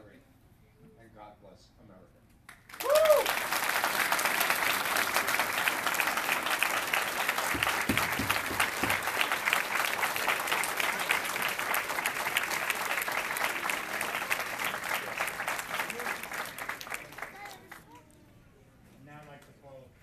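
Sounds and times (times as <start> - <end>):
audience applauding: 2.5 - 18.0.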